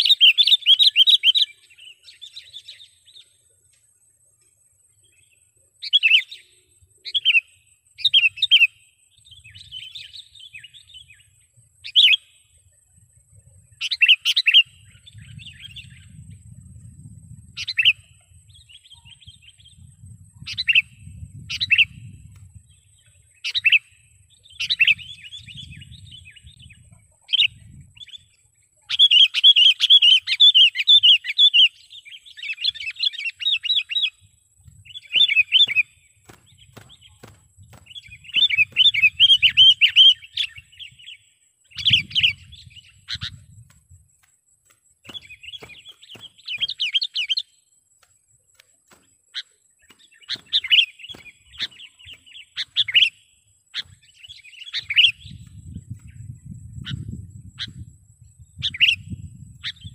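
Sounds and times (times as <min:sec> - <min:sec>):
bird calling: 0:34.9 - 0:43.4, 0:45.1 - 0:47.6, 0:48.6 - 0:55.4.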